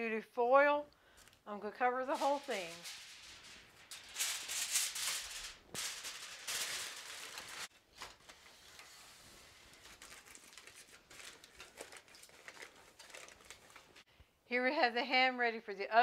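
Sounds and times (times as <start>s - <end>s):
aluminum foil crinkling: 2.0s - 14.1s.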